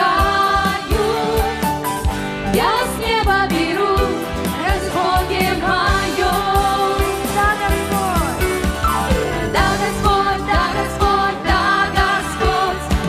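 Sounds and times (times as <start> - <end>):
women singing: 0.0 - 1.8, 2.5 - 7.8, 9.3 - 13.0
keyboard: 0.0 - 13.0
steady drum beat: 4.0 - 13.0.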